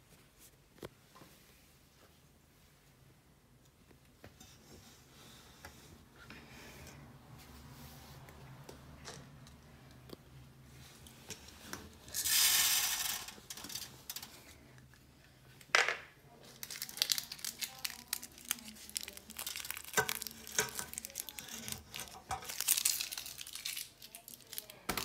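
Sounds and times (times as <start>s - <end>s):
beads pouring hiss: 12.1s - 14.4s
foil wrapper crinkling and tearing: 16.4s - 25.0s.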